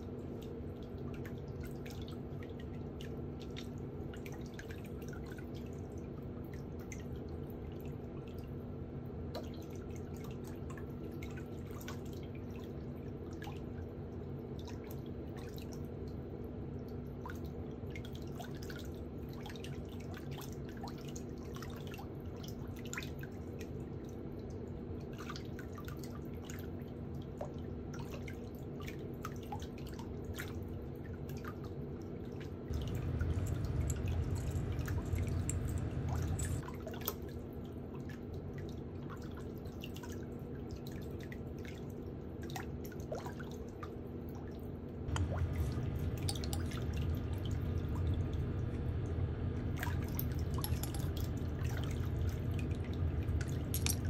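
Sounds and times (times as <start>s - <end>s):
steady low hum: 32.6s - 36.7s, 44.9s - 54.0s.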